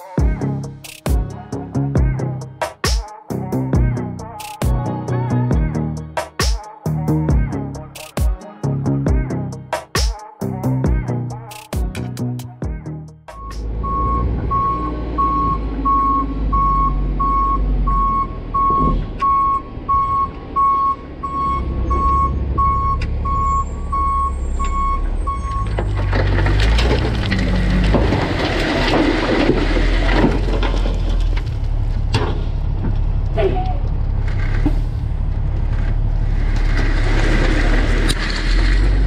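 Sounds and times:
diesel engine running low: 0:12.2 - 0:39.0
reverse alarm beeping: 0:13.3 - 0:25.8
dirt sliding out rumble: 0:24.5 - 0:39.0.

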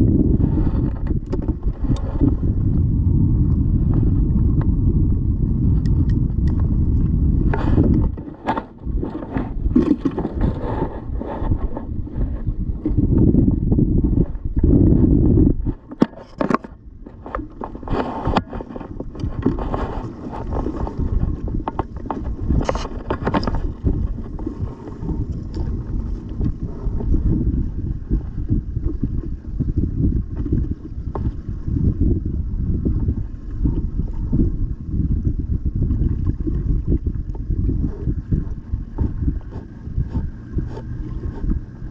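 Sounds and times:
wind buffeting microphone: 0:00.0 - 0:41.9
handling scrapes and knocks: 0:07.5 - 0:13.0, 0:15.6 - 0:27.2, 0:39.0 - 0:41.7.

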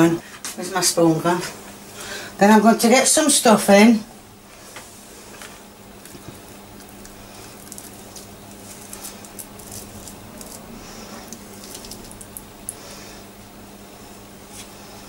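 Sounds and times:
steady low hum: 0:00.0 - 0:15.0
soft squishing of stuffing: 0:04.6 - 0:13.3.

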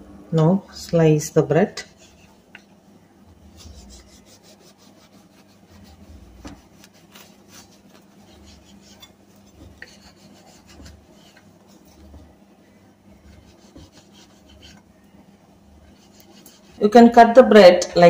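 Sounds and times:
knife sawing through bread: 0:01.8 - 0:02.4, 0:03.4 - 0:12.2, 0:13.1 - 0:14.8, 0:15.8 - 0:16.9.

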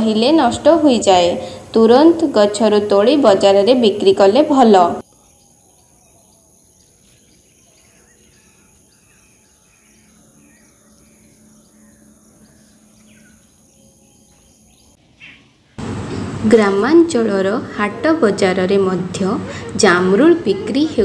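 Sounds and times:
faint bird chirps: 0:05.0 - 0:15.7.

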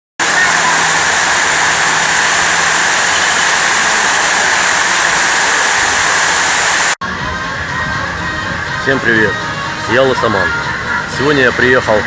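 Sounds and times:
fountain water splashing: 0:00.2 - 0:07.0.

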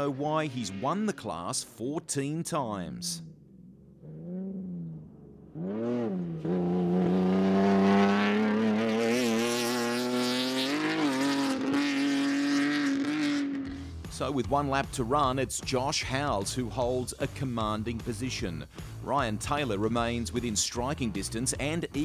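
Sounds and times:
race car engine revving: 0:00.0 - 0:01.6, 0:03.2 - 0:14.0.

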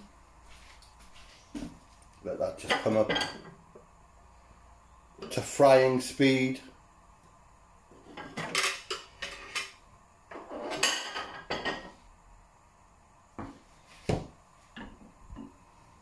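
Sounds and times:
kitchen utensils clinking: 0:02.6 - 0:03.6, 0:08.1 - 0:09.8, 0:10.4 - 0:11.9.

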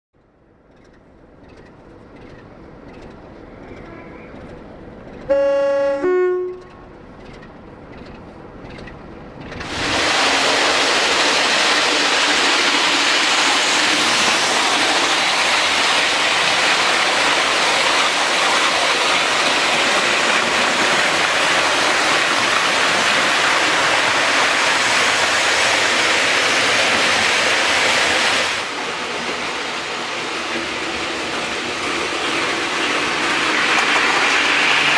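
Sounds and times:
train rushing past: 0:00.8 - 0:34.9
two-tone locomotive horn: 0:05.3 - 0:06.9.

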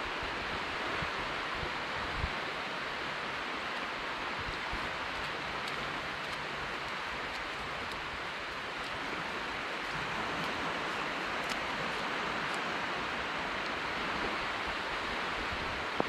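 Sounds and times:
small waves washing onto sand: 0:00.0 - 0:16.0
wind: 0:00.0 - 0:16.0.

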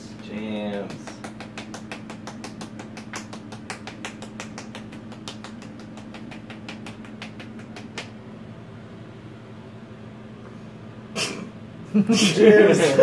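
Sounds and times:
rapid sharp clicks: 0:00.0 - 0:08.2
steady low hum: 0:00.0 - 0:13.0.

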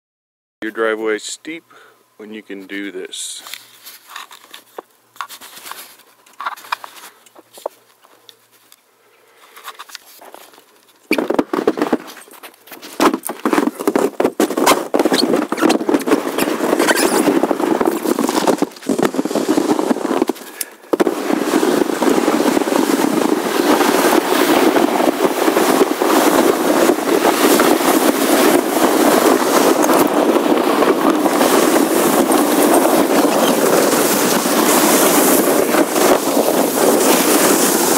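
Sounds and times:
light handling noises: 0:03.4 - 0:11.1
sled runners scraping on snow: 0:03.5 - 0:08.7, 0:09.4 - 0:37.9.

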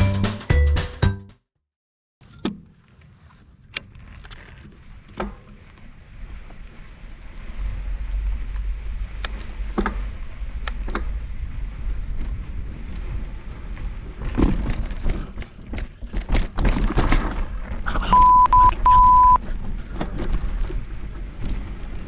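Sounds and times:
wind on microphone: 0:04.4 - 0:22.0
bicycle rattling impacts: 0:12.1 - 0:17.9.

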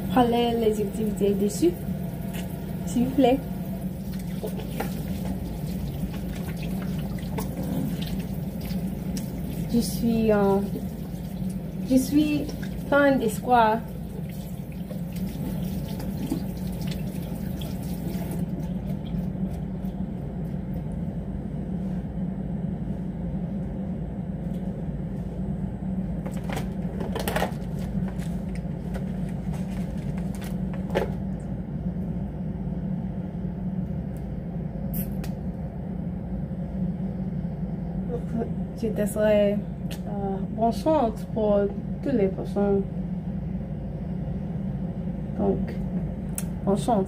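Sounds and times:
low background hum: 0:00.0 - 0:47.0.

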